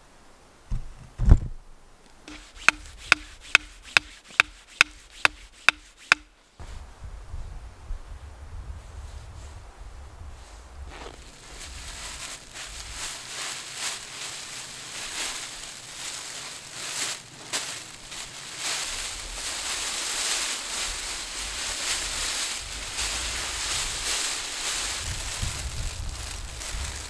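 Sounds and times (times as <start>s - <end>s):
tarp and foil blanket crinkling: 2.3s - 6.2s, 10.4s - 27.0s.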